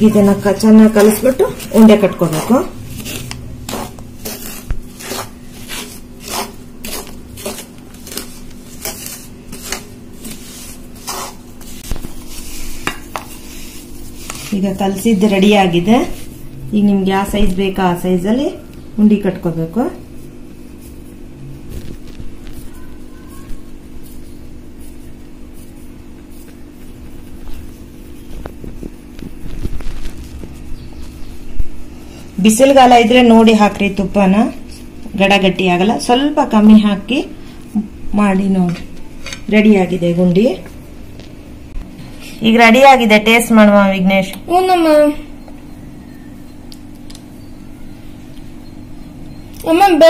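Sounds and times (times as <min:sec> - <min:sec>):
wooden spatula scraping metal pan: 0:00.0 - 0:16.4.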